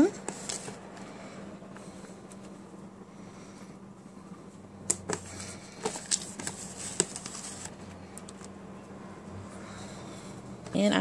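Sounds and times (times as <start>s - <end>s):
steady low hum: 0.0s - 11.0s
taps and rustles on plastic: 4.9s - 8.5s.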